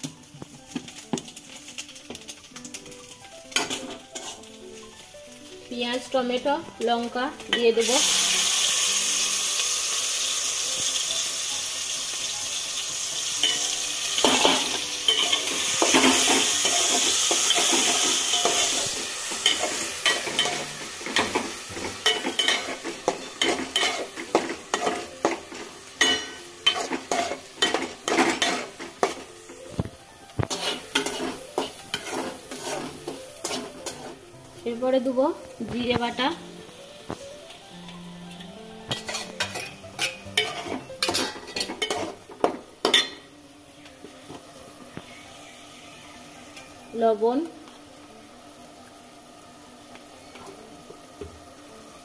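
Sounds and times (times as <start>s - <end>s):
vegetables sizzling in hot oil: 0.0s - 52.0s
metal ladle scraping pot: 26.0s - 29.3s, 30.5s - 34.2s, 38.9s - 42.2s.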